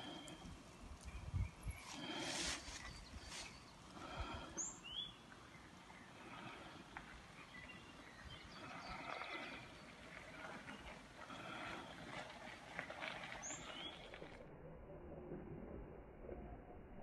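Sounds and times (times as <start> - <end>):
birds chirping: 0.0 - 14.4.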